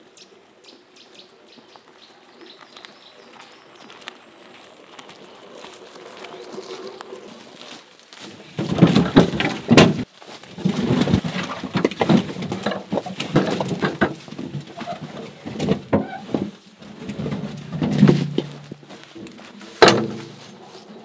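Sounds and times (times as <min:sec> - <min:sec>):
scuffing: 0:02.6 - 0:21.0
logs knocking and thudding: 0:08.2 - 0:20.6.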